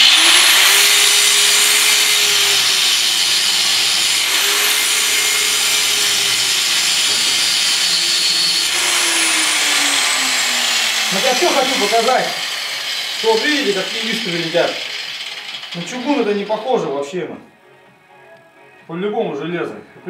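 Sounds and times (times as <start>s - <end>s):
angle grinder grinding steel: 0.0s - 16.9s.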